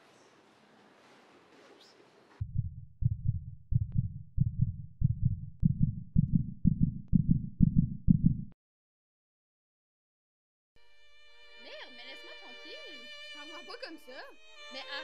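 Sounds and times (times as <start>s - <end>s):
heartbeat double thumps: 2.4s - 8.6s.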